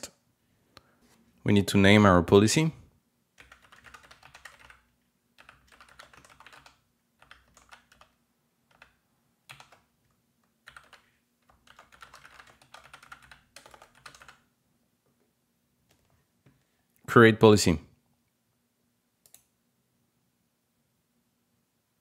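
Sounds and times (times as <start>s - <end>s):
faint keyboard typing: 3.3s - 14.5s, 15.8s - 16.7s, 19.2s - 19.6s.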